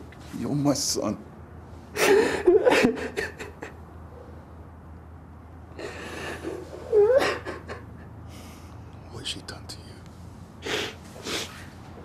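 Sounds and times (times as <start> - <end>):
man crying: 5.8 - 8.2.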